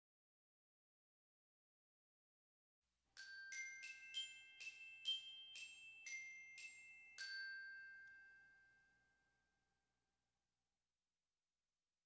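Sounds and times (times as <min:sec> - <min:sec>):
glockenspiel-like bell jingle: 0:03.1 - 0:10.0.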